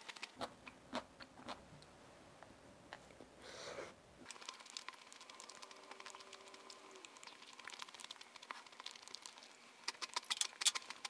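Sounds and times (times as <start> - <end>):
mouth clicks and soft crackles: 0.0 - 3.3, 4.2 - 11.0
close-up chewing: 4.2 - 11.0.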